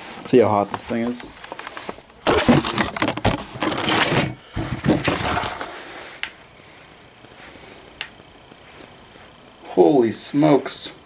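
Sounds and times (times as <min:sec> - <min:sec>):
camera handling clatter: 0:01.4 - 0:05.1
faint steady hiss: 0:05.3 - 0:11.0.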